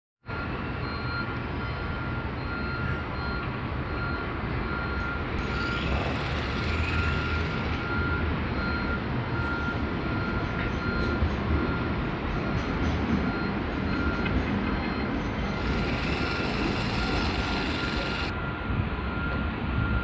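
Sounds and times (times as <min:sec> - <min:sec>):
short electronic beeps: 0:00.3 - 0:12.6, 0:13.3 - 0:20.0
tram rumbling past: 0:05.2 - 0:19.8.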